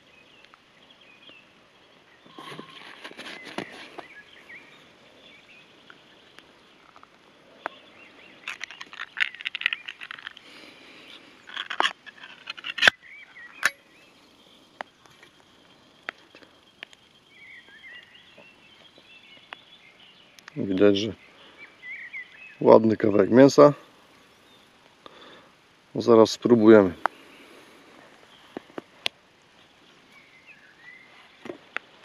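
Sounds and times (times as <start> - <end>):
faint bird chirps: 0.0 - 26.2, 29.5 - 32.0
tin can lid scraping: 2.3 - 4.1, 8.4 - 10.4, 11.4 - 13.0.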